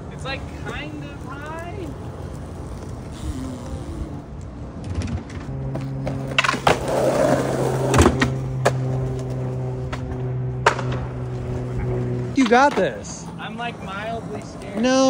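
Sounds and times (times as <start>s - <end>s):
skateboard wheels rolling on asphalt: 0.0s - 15.0s
skateboard clacks: 4.8s - 13.1s
skateboard pop: 9.9s - 11.0s
skateboard landing smack: 10.6s - 11.1s.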